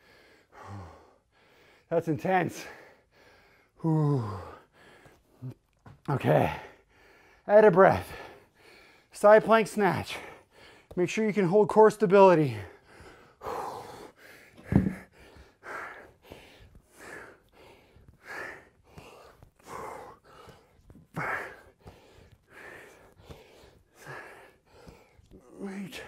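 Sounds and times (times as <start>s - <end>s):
man breathing heavily: 0.0s - 5.8s, 6.4s - 11.0s, 12.4s - 26.0s
thump: 14.6s - 15.0s.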